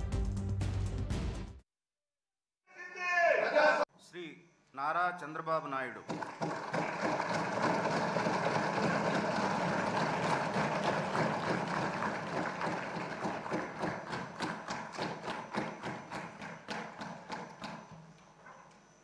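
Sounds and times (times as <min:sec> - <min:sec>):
crowd cheering: 0:02.8 - 0:03.9, 0:06.1 - 0:16.4
crowd clapping: 0:06.1 - 0:17.8.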